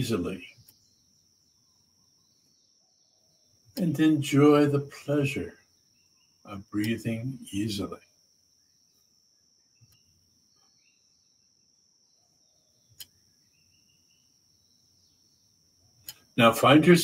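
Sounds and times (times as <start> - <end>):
faint high-pitched insect drone: 0.0 - 17.0.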